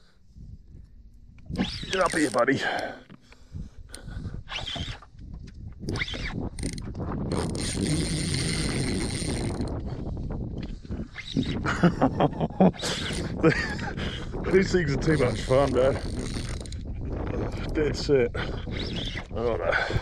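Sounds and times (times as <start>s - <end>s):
reel ratchet clicks: 1.4s - 2.8s, 3.9s - 5.1s, 5.8s - 9.8s, 15.0s - 16.9s
fishing reel drag buzzing: 1.4s - 3.0s, 3.9s - 5.2s, 5.8s - 10.0s, 11.0s - 11.6s, 12.8s - 13.7s, 14.5s - 17.8s, 18.4s - 19.9s.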